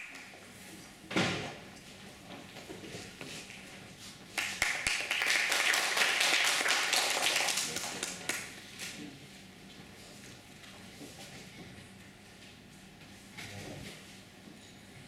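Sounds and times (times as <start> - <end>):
audience applauding: 4.4 - 8.5.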